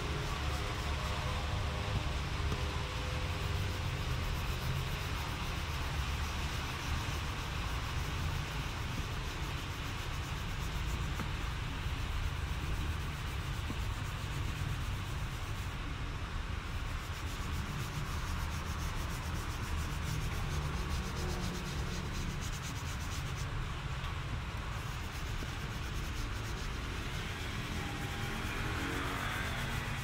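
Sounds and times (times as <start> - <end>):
hand rubbing leather seat: 16.9 - 23.6.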